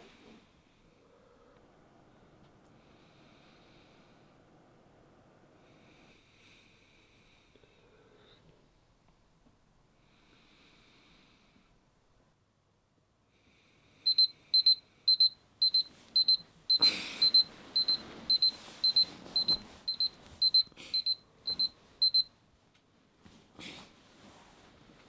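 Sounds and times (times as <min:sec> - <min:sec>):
phone alarm beeping: 0:14.1 - 0:22.3
bedding rustling: 0:15.8 - 0:20.6, 0:22.9 - 0:25.0.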